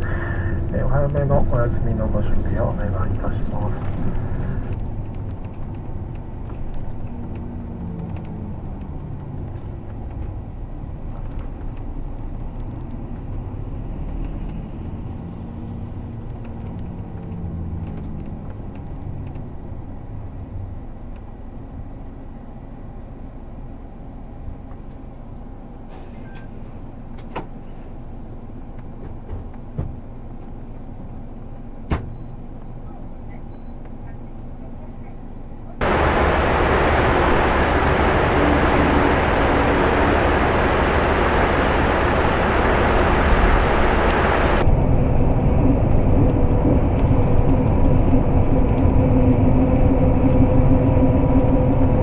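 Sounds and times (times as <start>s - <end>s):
coach engine and road rumble: 0.0s - 52.0s.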